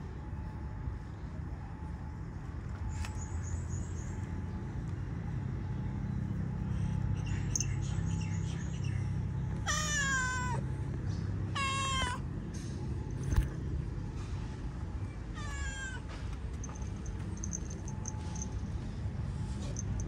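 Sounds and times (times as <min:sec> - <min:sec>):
steady low background hum: 0:00.0 - 0:20.0
cat meowing: 0:09.7 - 0:10.6, 0:11.5 - 0:12.2.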